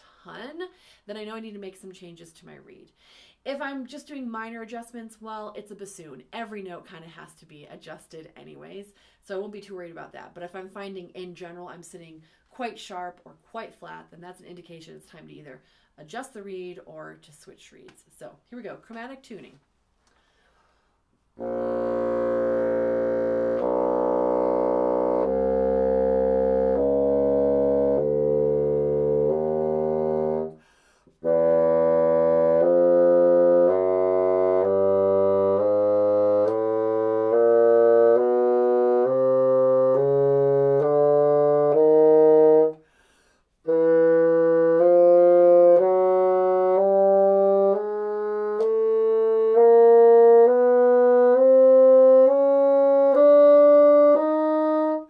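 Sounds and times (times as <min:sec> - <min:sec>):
bassoon playing a scale: 0:21.4 - 0:30.6, 0:31.2 - 0:42.8, 0:43.6 - 0:55.0.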